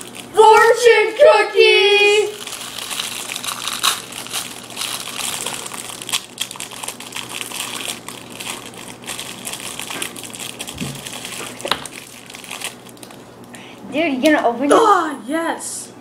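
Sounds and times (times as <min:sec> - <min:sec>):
plastic wrappers crinkling: 0:00.0 - 0:00.4, 0:02.3 - 0:13.6.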